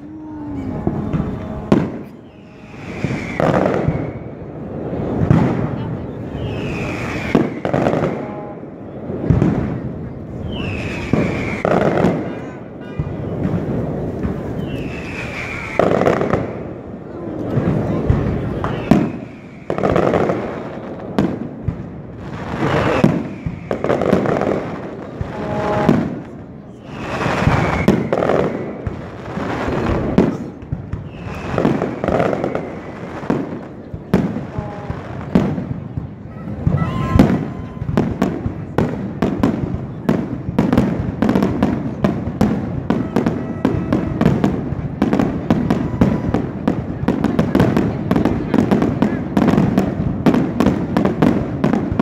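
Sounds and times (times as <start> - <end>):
rapid firework crackling: 0.0 - 52.0.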